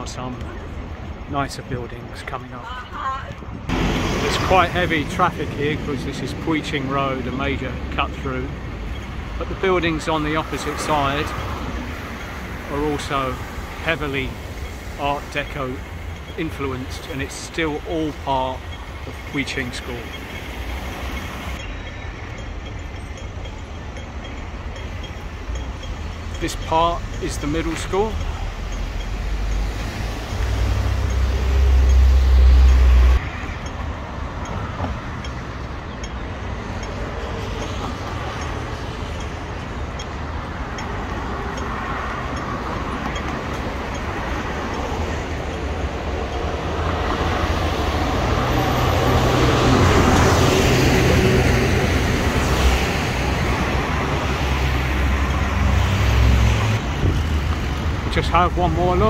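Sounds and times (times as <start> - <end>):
city traffic passing: 0.0 - 59.0
vehicle passing close: 39.9 - 59.0.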